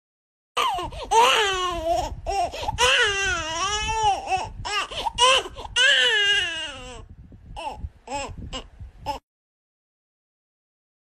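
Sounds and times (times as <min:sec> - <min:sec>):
baby-like crying: 0:00.6 - 0:09.2.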